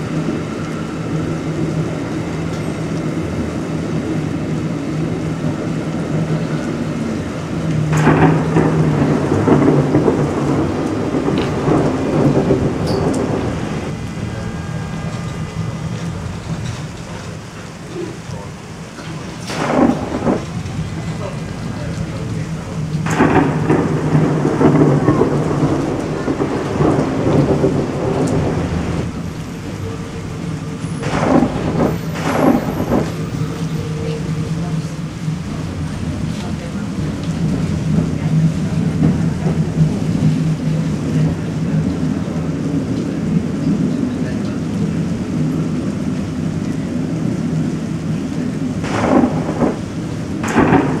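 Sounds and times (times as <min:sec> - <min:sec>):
steady rain: 0:00.0 - 0:51.0
thunder rumbling: 0:00.0 - 0:51.0.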